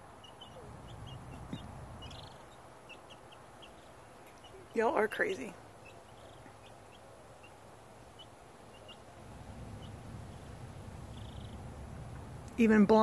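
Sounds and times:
chicks peeping: 0.0 - 12.3
low rumble: 9.2 - 12.6.

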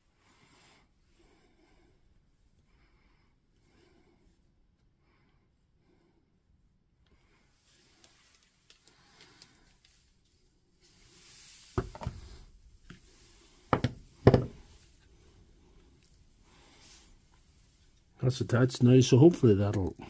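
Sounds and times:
faint small clicks: 8.0 - 10.0
tools knocking on workbench: 13.7 - 14.6.

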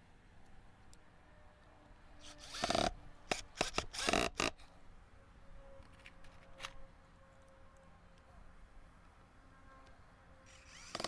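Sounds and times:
cordless drill boring into wood: 2.2 - 4.5, 10.5 - 11.0.

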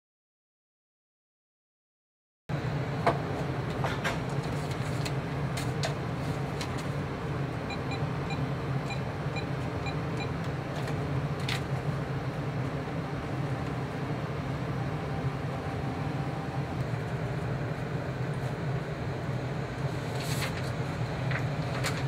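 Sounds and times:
steady low hum: 2.5 - 22.0
fax machine key beeps: 7.7 - 10.4.

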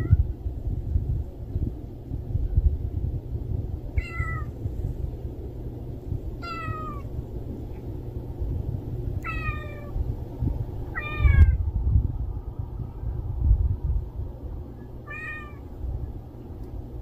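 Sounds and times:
low rumble: 0.0 - 17.0
cat meowing: 4.0 - 4.5, 6.4 - 7.1, 9.2 - 10.0, 10.9 - 11.6, 15.0 - 15.6.

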